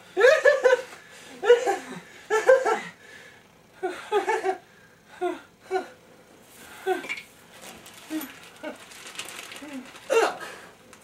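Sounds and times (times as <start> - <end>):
man laughing: 0.1 - 3.0.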